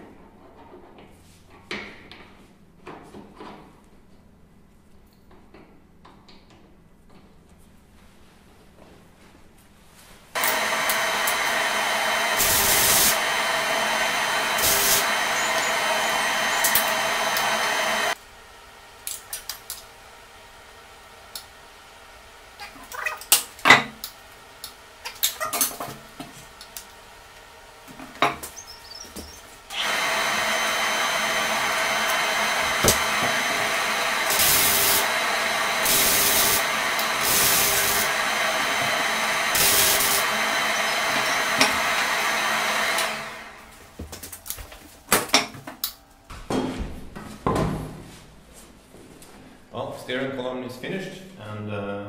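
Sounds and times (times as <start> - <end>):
welder hissing: 10.4 - 18.2, 28.2 - 43.8.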